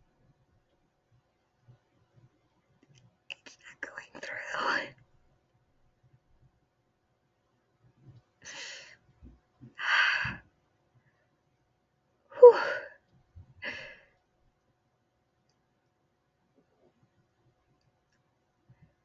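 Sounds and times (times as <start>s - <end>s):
woman sighing and gasping: 9.8s - 10.4s, 12.3s - 13.0s, 13.6s - 14.0s
woman whimpering: 12.4s - 12.9s.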